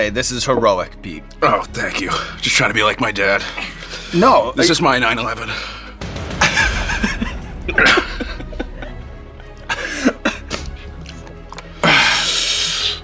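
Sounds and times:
background music: 0.0 - 13.0
man coughing: 7.1 - 8.9, 9.6 - 10.8.

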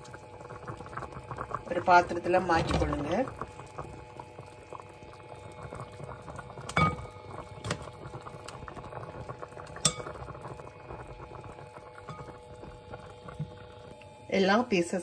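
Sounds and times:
curry bubbling in a pot: 0.0 - 15.0
tongs clinking against pot: 9.8 - 10.2.

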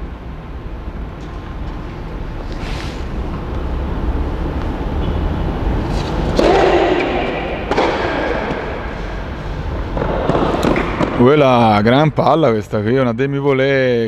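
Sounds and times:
low background rumble: 0.0 - 10.8
tennis racquets hitting ball: 4.7 - 11.2.

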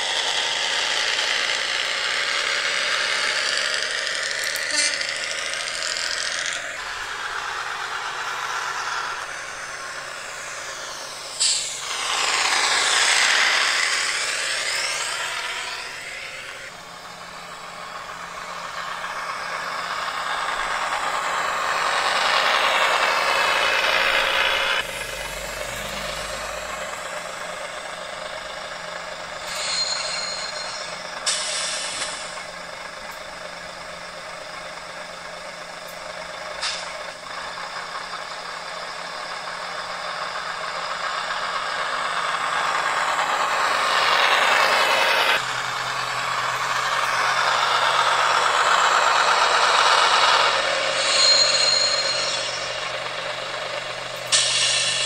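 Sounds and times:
diesel railcar engine sounds: 0.0 - 55.0
short hiss: 11.4 - 11.7, 54.3 - 55.0.

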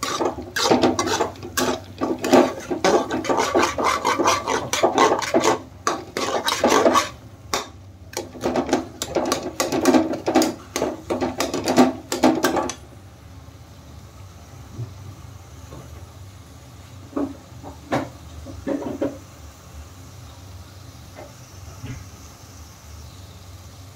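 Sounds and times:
ladle scraping metal pan: 0.0 - 11.8.

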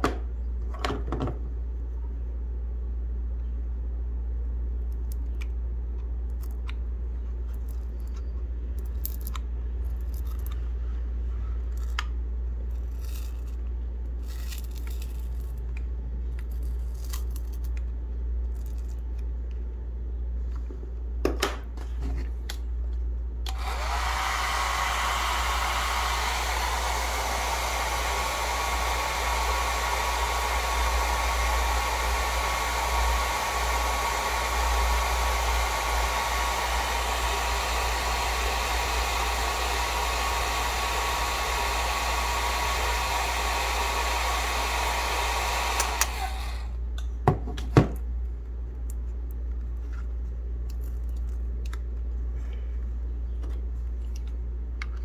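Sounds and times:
hair dryer blowing: 23.5 - 46.8.

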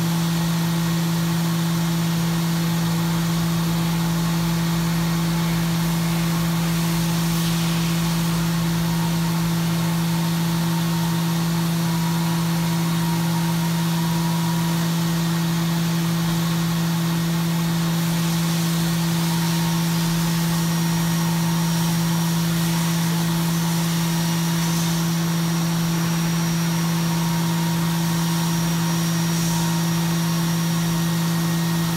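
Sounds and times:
milling machine humming: 1.4 - 31.9
faint high whine: 3.8 - 11.2
even hiss: 4.7 - 10.9.

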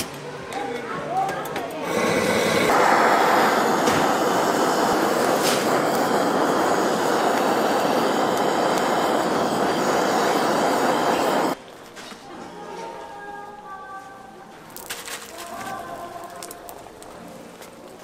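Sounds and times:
blowtorch flame hissing: 1.8 - 11.6.

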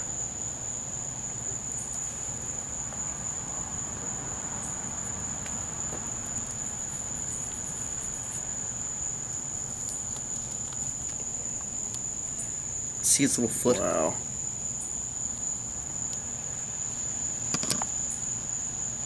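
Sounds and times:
crickets trilling: 0.0 - 19.0.

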